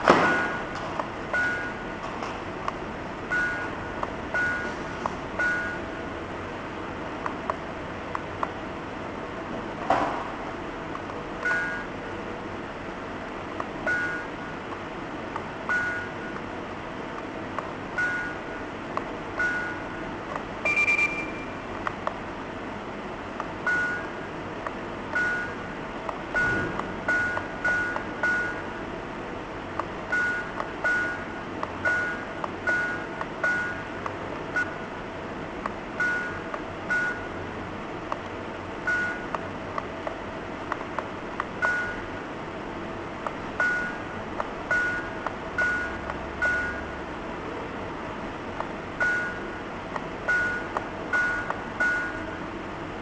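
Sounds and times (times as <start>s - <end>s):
alarm clock button beeps: 20.7s - 21.6s, 49.0s - 49.4s, 50.3s - 52.2s.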